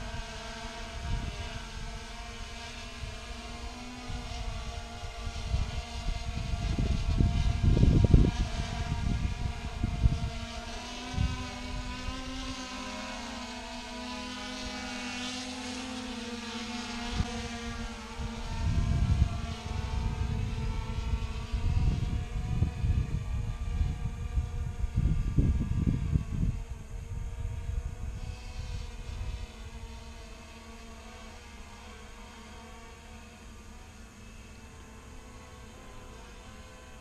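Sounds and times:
quadcopter propellers whining: 0:00.0 - 0:37.0
wind rumbling on microphone: 0:00.0 - 0:37.0.

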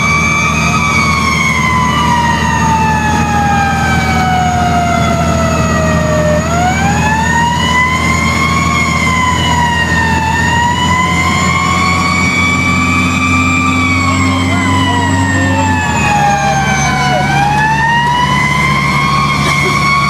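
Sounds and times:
fire truck siren: 0:00.0 - 0:20.0
truck engine drone: 0:00.0 - 0:20.0.

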